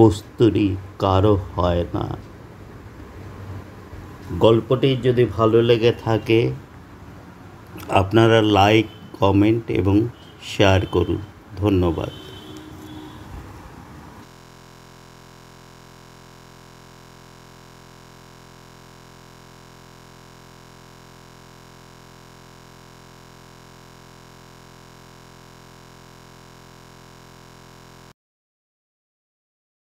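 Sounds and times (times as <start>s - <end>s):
fluttering electronic buzz: 12.0s - 13.4s, 14.2s - 28.2s.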